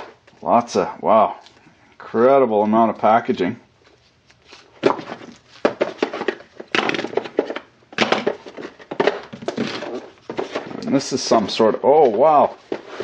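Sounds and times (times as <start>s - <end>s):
plastic packaging tray handling: 4.5s - 13.0s.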